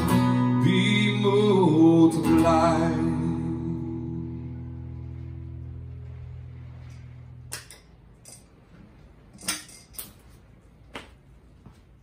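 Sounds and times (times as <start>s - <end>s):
acoustic guitar chord ringing: 0.0s - 7.5s.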